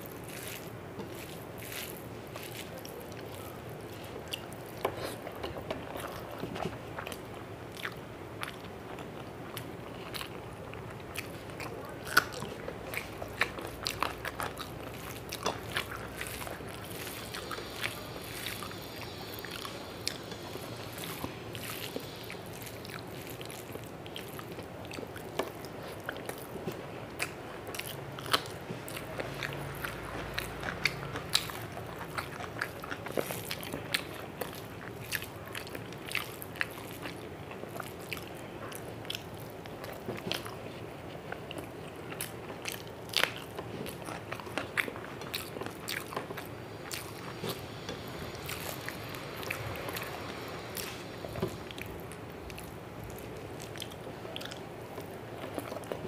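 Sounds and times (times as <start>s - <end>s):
fingers mixing rice on plate: 0.0s - 7.2s
person chewing food: 0.0s - 56.0s.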